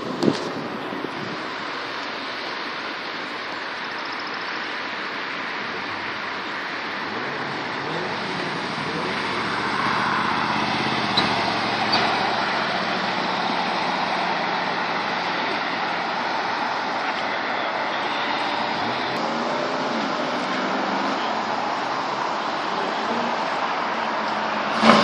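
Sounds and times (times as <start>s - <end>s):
road and traffic noise: 0.0s - 25.0s
pickup truck driving past: 7.1s - 16.8s, 24.6s - 25.0s.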